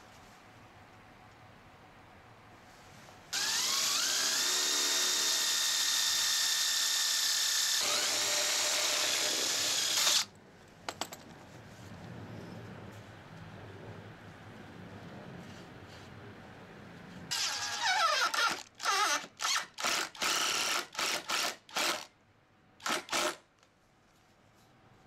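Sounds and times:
cordless drill whining: 3.4 - 10.3, 17.3 - 22.0.

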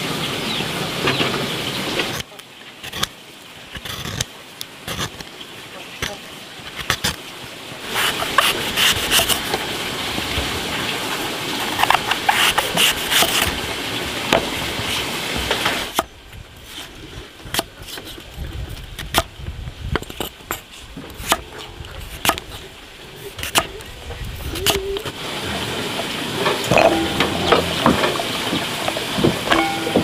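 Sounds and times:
knife slicing fruit: 2.1 - 3.1, 6.0 - 7.2, 7.9 - 9.6, 11.6 - 13.5, 23.3 - 23.7.

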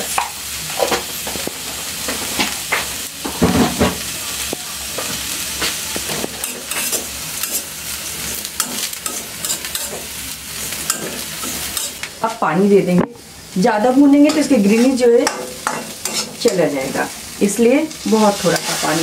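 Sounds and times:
food sizzling in a pan: 0.0 - 19.0
metal spatula scraping a pan: 5.0 - 12.1, 14.2 - 17.2, 17.8 - 19.0.

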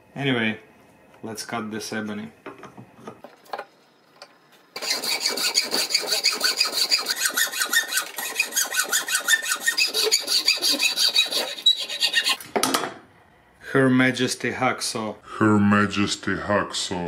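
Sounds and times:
hacksaw cutting wood: 4.8 - 12.4.

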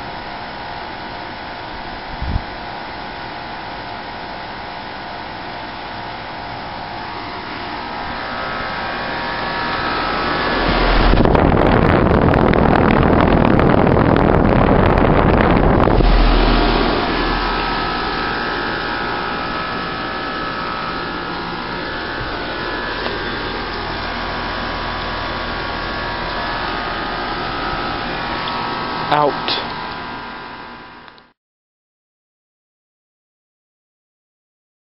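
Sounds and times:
heat pump humming: 0.0 - 31.3
faint whine: 6.7 - 30.9
loud rushing air: 7.7 - 29.0.

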